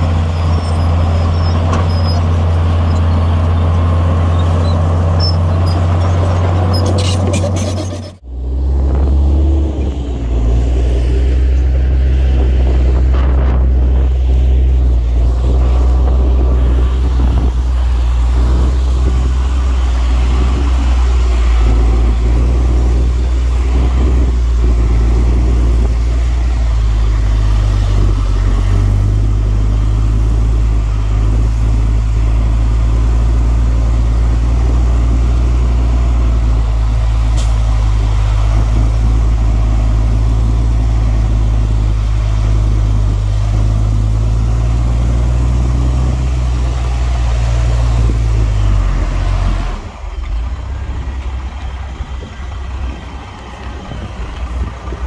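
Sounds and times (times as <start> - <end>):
heavy diesel engine humming: 0.0 - 55.0.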